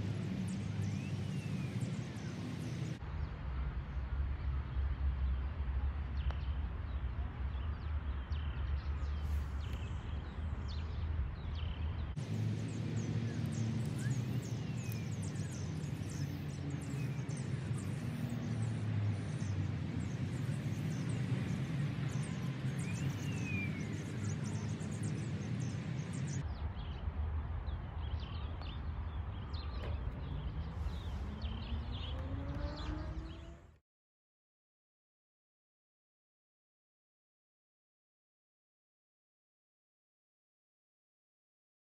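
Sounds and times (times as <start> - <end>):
small birds chirping: 0.0 - 3.0, 6.1 - 27.1, 27.7 - 33.7.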